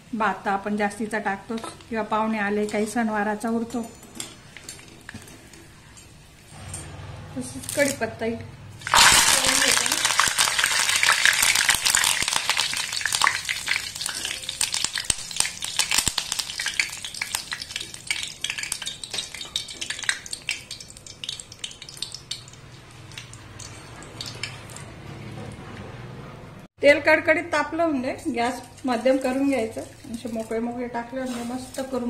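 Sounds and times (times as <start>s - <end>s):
leaves sizzling in hot oil: 8.8s - 24.8s, 28.0s - 32.0s.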